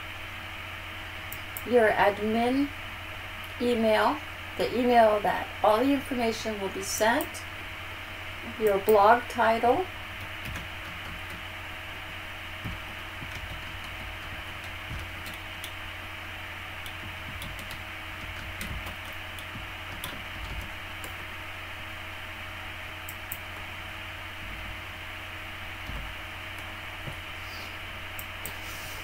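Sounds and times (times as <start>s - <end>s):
low electrical hum: 0.0s - 29.0s
computer keyboard keystrokes: 10.2s - 11.4s, 12.6s - 15.8s, 16.8s - 21.2s.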